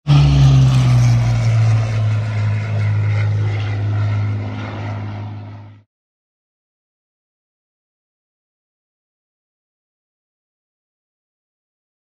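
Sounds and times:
propeller aircraft engine drone: 0.0 - 5.9.

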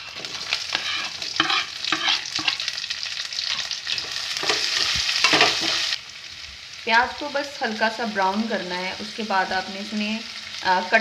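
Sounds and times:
spatula scraping pan: 0.0 - 2.8, 3.4 - 5.9
onions sizzling in oil: 0.0 - 11.0.

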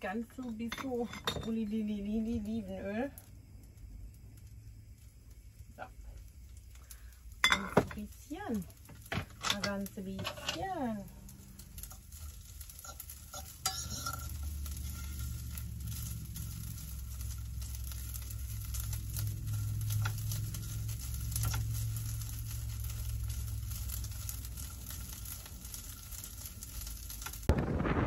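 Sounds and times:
curry sizzling in a pan: 0.0 - 27.6
steady low hum: 0.0 - 28.0
utensil scraping a pan: 9.2 - 11.0, 11.8 - 26.2.

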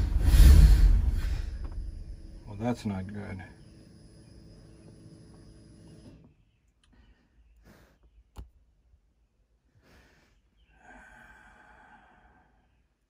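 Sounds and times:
faint hum of tones: 1.6 - 6.6
faint breathing with sigh: 9.8 - 12.8.

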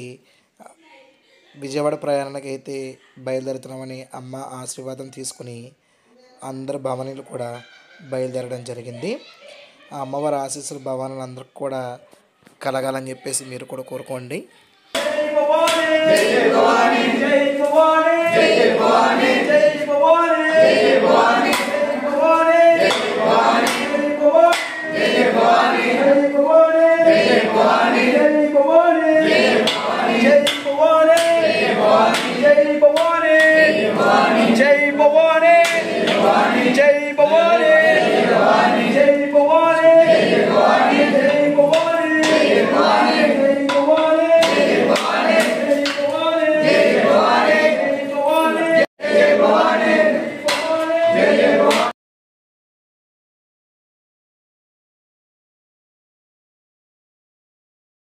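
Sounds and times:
men chanting in chorus: 15.0 - 52.0.

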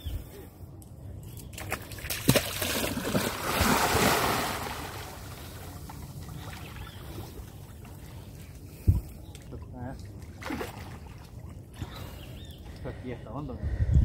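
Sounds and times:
splash into water: 1.6 - 5.3, 10.4 - 11.3.

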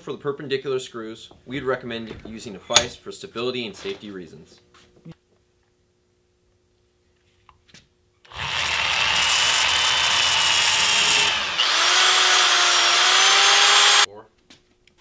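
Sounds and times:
electric drill boring with whine: 8.3 - 14.1.

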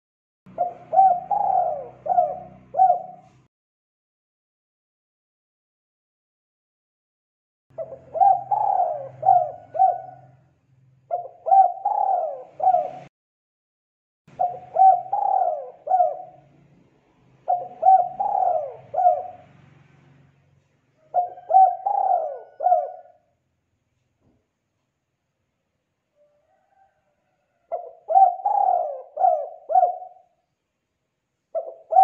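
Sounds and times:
dove cooing: 0.5 - 3.5, 7.7 - 10.5, 11.1 - 13.1, 14.3 - 16.5, 17.4 - 19.6, 21.0 - 23.3, 26.2 - 30.4, 31.5 - 32.0.

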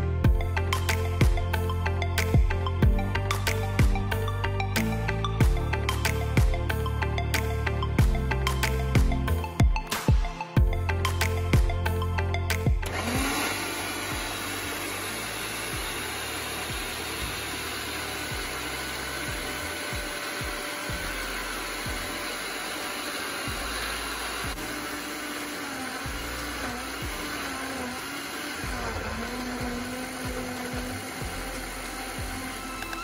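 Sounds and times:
blender whirring: 12.5 - 33.0.

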